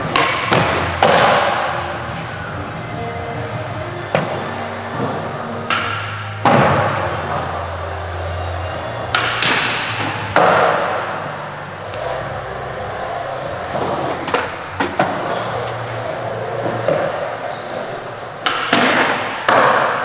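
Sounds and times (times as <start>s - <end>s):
skateboard clacking against floor: 0.0s - 1.7s, 5.0s - 7.5s, 9.1s - 11.2s, 18.4s - 20.0s
skateboard wheels rolling on concrete: 0.0s - 20.0s.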